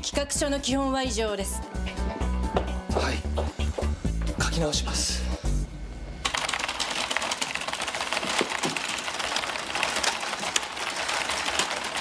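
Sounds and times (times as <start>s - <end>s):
fast keyboard typing: 6.2s - 12.0s.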